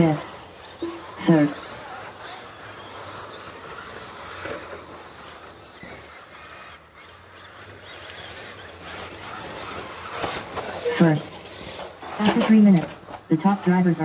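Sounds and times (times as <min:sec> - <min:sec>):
toy car motors and tyres: 0:00.0 - 0:14.0.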